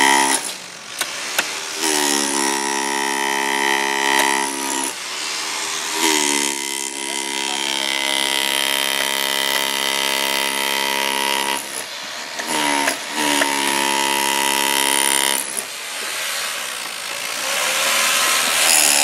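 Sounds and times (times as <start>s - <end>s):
power tool motor whine: 0.0s - 19.0s.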